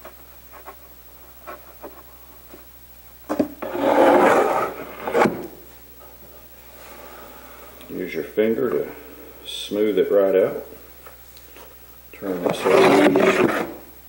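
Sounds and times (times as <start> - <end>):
wood scraping on wood: 3.3 - 5.6, 12.3 - 13.8.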